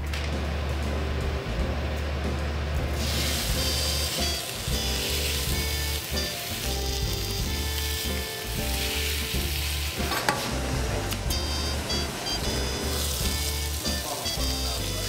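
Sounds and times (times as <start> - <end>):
soft background music: 0.0 - 15.0
meat sizzling in frying pan: 3.0 - 15.0.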